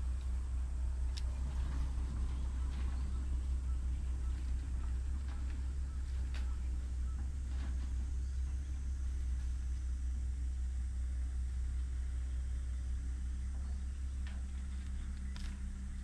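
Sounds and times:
excavator engine rumbling: 0.0s - 16.0s.

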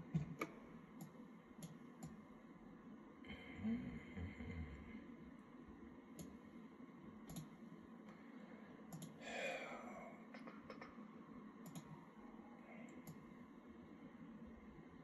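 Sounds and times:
computer mouse clicking: 0.0s - 2.2s, 6.1s - 6.4s, 7.2s - 7.6s, 8.9s - 9.2s, 11.6s - 12.0s, 12.9s - 13.3s
breathy exhale: 8.2s - 10.2s.

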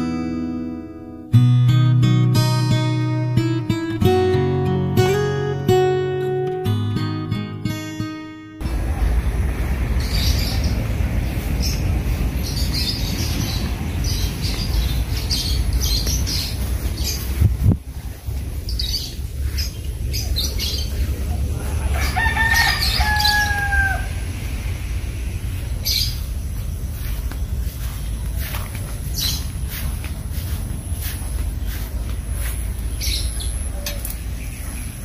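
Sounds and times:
wind buffeting microphone: 8.6s - 21.9s
small birds chirping: 8.6s - 35.0s
rooster crowing: 21.5s - 24.4s.

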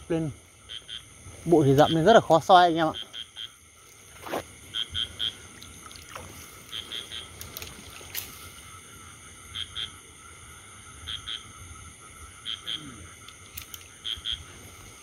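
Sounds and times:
frog calling: 0.0s - 15.0s
wading through water: 3.7s - 8.8s.

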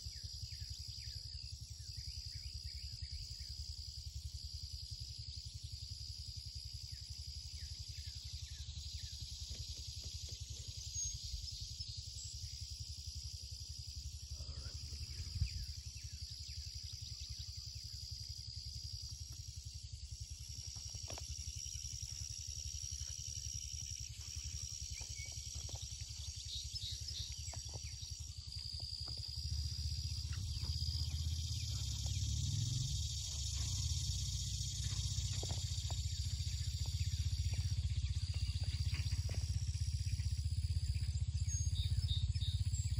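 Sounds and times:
insects buzzing: 0.0s - 42.9s
low rumble: 29.2s - 42.4s.

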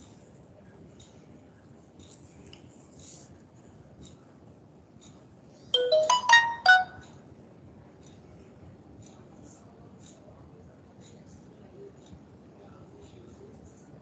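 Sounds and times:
electronic notification jingle: 5.8s - 7.0s.

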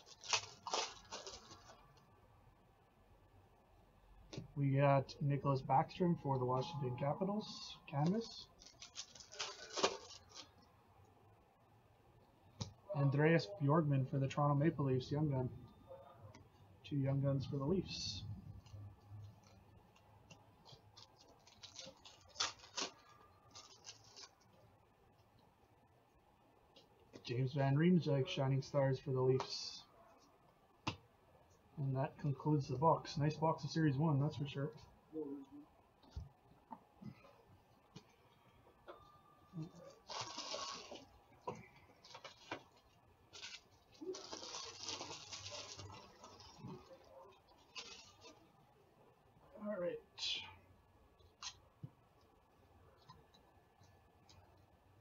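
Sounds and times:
foil wrapper ripping: 0.0s - 1.8s, 8.6s - 10.5s, 21.0s - 24.4s, 40.0s - 41.0s, 43.3s - 46.8s
foil wrapper crinkling: 0.0s - 2.0s, 8.2s - 10.6s, 20.6s - 24.6s, 39.9s - 41.1s, 42.0s - 48.4s.

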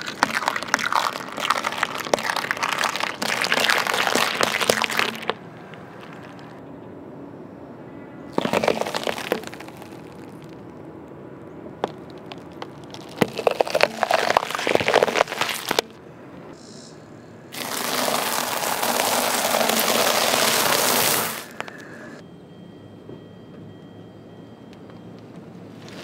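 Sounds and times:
tyre crunching snack sticks: 0.0s - 6.6s, 8.3s - 10.6s, 11.8s - 16.0s, 17.6s - 21.9s
tyre crushing peppers cracking: 0.0s - 6.6s, 8.3s - 10.6s, 11.8s - 16.0s, 17.6s - 21.9s.

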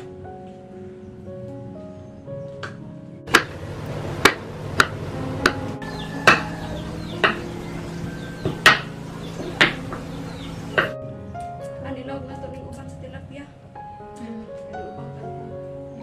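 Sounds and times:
knife chopping on wooden board: 3.3s - 3.6s, 8.4s - 10.1s.

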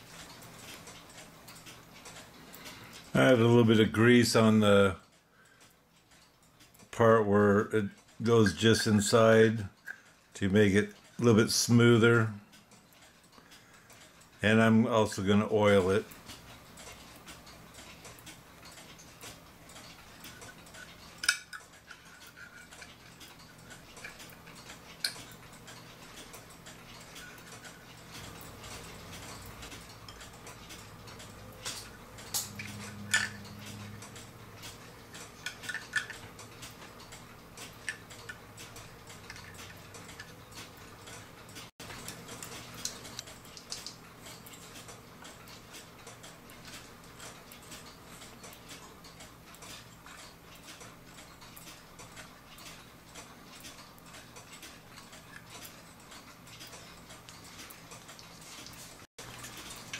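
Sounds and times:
clock ticking faintly: 0.0s - 59.9s
clicks of clock gears handled: 16.0s - 59.9s.

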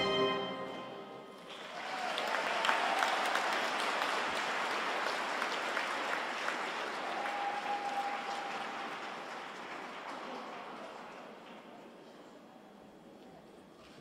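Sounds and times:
audience applauding: 1.4s - 12.1s.

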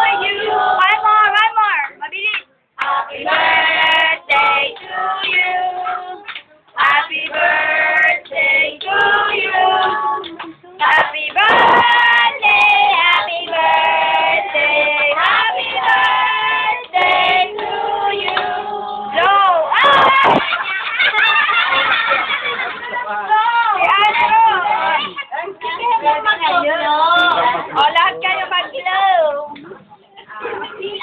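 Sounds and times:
children and women singing: 0.0s - 1.4s, 2.8s - 20.7s, 25.6s - 29.1s.

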